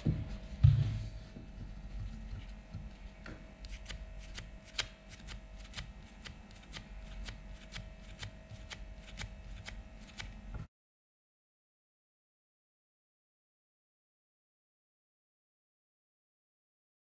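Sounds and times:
faint steady hum: 0:00.0 - 0:10.7.

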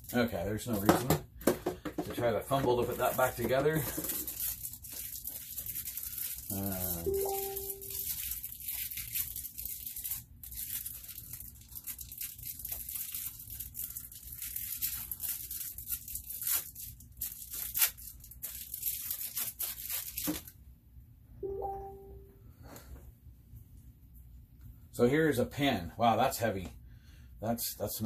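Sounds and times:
plastic bag crinkling and tearing: 0:02.5 - 0:20.6.

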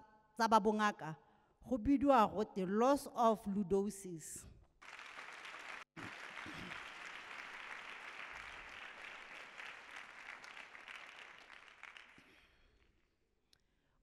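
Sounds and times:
crowd applauding: 0:04.8 - 0:12.6.

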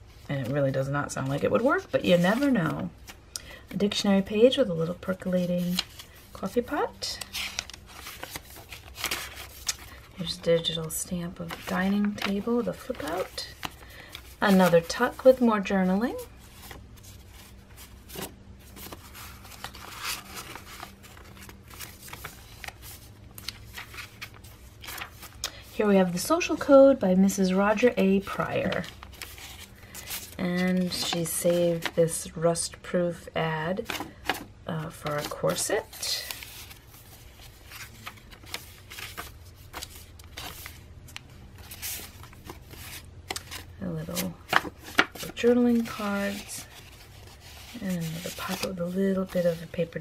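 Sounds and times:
paper rustling and crinkling: 0:05.1 - 0:26.8, 0:27.8 - 0:32.0, 0:33.8 - 0:50.0
pages turning: 0:07.1 - 0:10.8, 0:11.4 - 0:15.4, 0:16.4 - 0:25.8, 0:28.2 - 0:31.9, 0:33.8 - 0:50.0.

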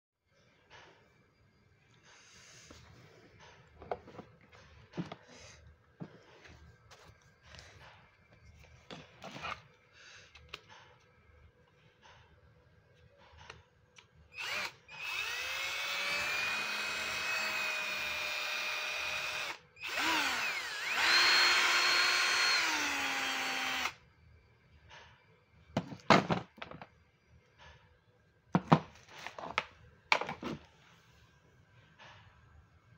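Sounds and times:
cordless drill motor whining: 0:14.3 - 0:24.0
handling knocks and clatters: 0:25.8 - 0:26.9.

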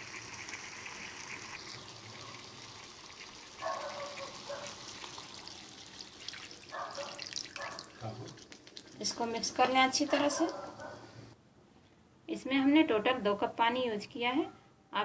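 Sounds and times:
water poured into hot pan: 0:00.0 - 0:09.3
faint frying sizzle: 0:00.0 - 0:10.4.

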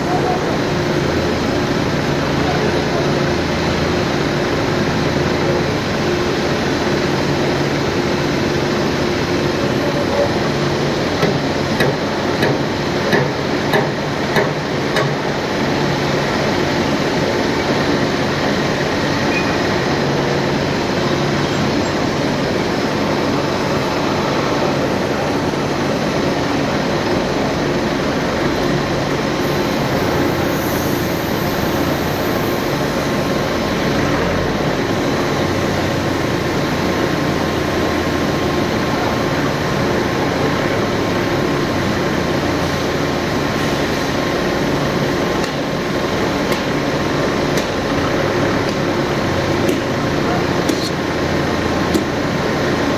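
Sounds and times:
industrial machinery clattering: 0:06.7 - 0:27.5, 0:43.4 - 0:52.9
sharp knocks: 0:11.2 - 0:15.2.

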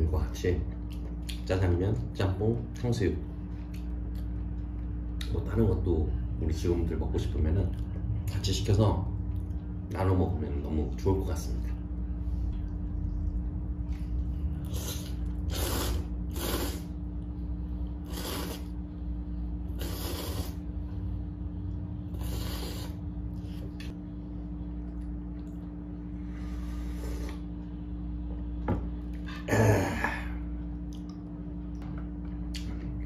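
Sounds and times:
person slurping noodles: 0:14.6 - 0:17.0, 0:18.0 - 0:18.8, 0:19.7 - 0:20.7, 0:22.1 - 0:23.0.

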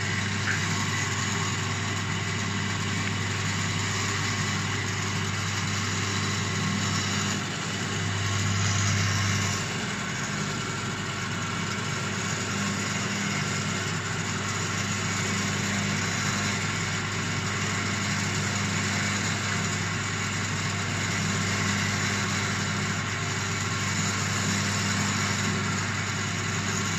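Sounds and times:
machine humming: 0:00.0 - 0:26.9.

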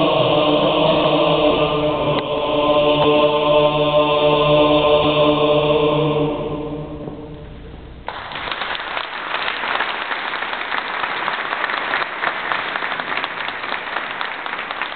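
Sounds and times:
audience applause: 0:08.1 - 0:14.9.

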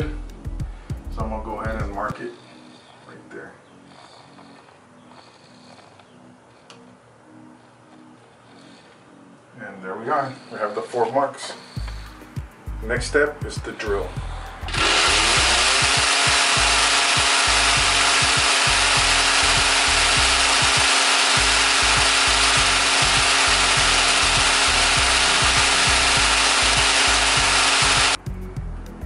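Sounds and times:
electric drill boring into brick: 0:14.6 - 0:28.2.

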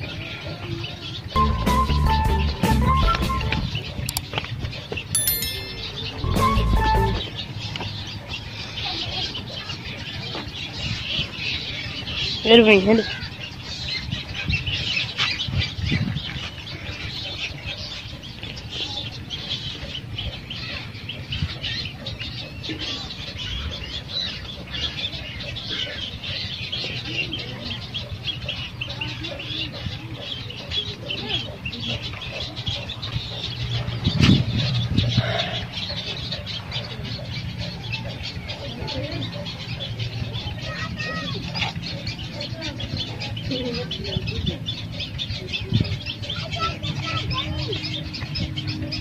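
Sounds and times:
small birds chirping: 0:00.0 - 0:49.0.

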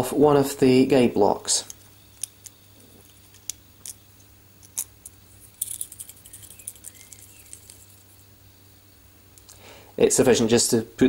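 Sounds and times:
metal screws clicking and rattling: 0:01.7 - 0:04.0, 0:04.6 - 0:08.1.

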